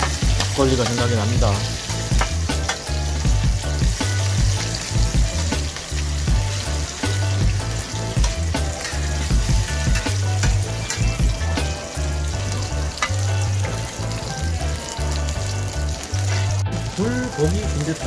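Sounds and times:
pancakes sizzling in oil: 0.0 - 18.0
metal spatula scraping griddle: 7.9 - 11.2.

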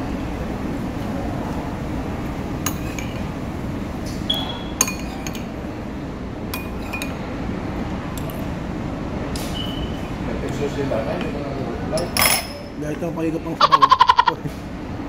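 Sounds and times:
steady background hum: 0.0 - 15.0
cutlery clinking against bowl: 2.6 - 3.3, 4.3 - 5.5, 6.5 - 7.2, 12.0 - 13.0.

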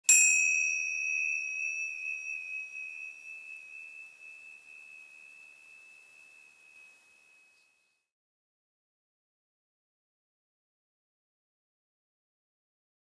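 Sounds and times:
metal chime ringing: 0.1 - 8.0.

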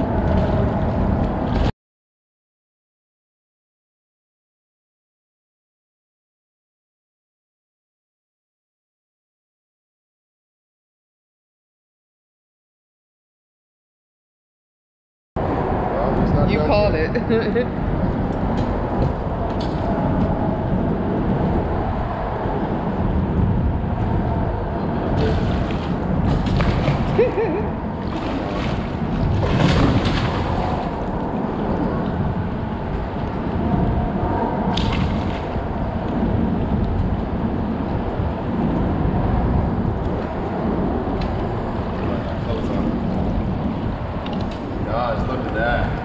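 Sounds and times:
steady low rumble: 0.0 - 1.7, 15.4 - 46.0
water sloshing and gurgling: 0.0 - 1.7, 23.0 - 44.8
sharp water splashes: 25.2 - 31.3, 34.7 - 35.7.

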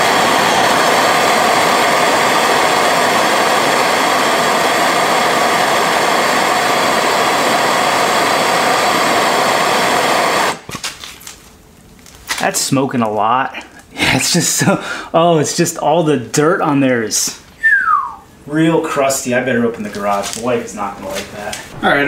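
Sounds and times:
propane torch hissing: 0.0 - 10.7.

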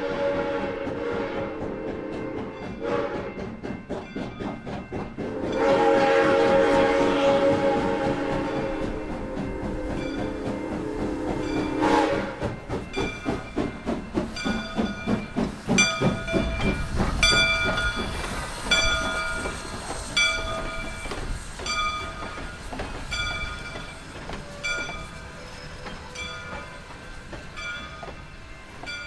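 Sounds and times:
steam locomotive chime whistle: 0.0 - 3.6, 5.2 - 29.0
locomotive bell striking: 9.0 - 29.0.

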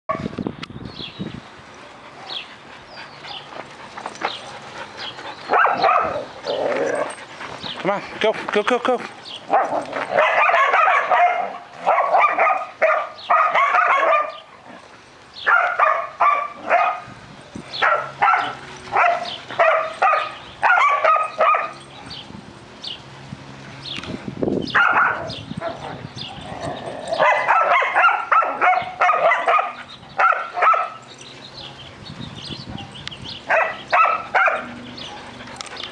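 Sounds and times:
dogs barking: 2.1 - 7.7, 9.4 - 17.1, 17.7 - 22.2, 24.7 - 31.9, 32.6 - 35.9.

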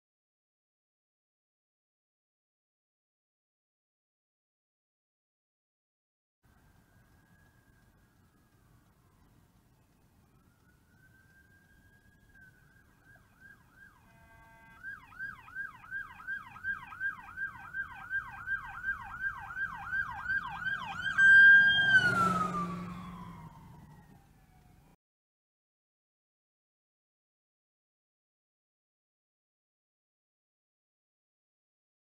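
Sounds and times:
emergency vehicle siren: 6.4 - 25.0
rush of vehicle noise: 20.4 - 24.6.

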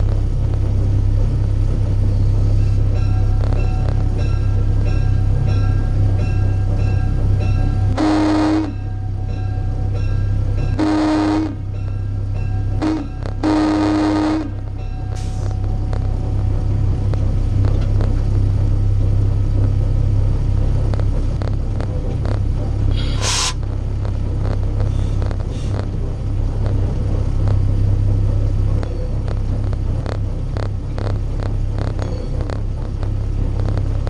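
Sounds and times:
diesel locomotive engine humming: 0.0 - 34.0
locomotive horn blast: 7.9 - 9.2, 10.7 - 11.7, 12.7 - 15.7
short hiss: 23.0 - 23.6.

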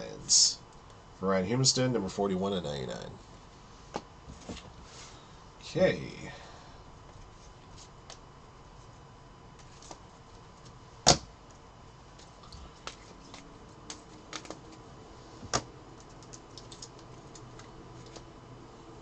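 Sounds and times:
plastic card sleeves clacking: 12.8 - 14.8.

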